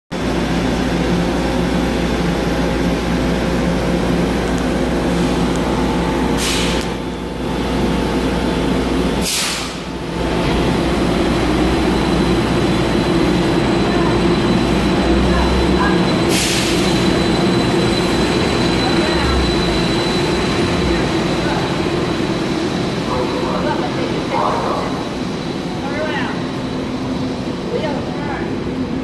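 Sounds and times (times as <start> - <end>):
electric bus humming: 0.2 - 29.0
air hiss: 9.2 - 9.8.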